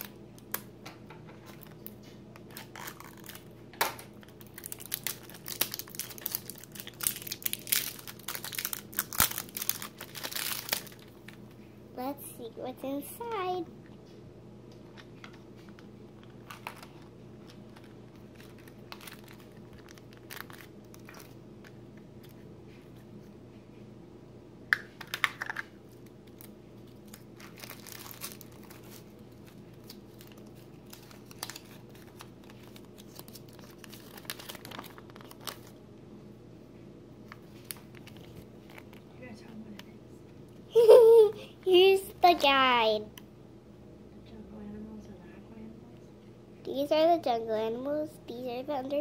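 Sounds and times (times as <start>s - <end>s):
foil wrapper crinkling and tearing: 1.4s - 3.5s, 4.2s - 11.4s, 16.2s - 21.4s, 25.4s - 35.8s, 37.3s - 39.0s.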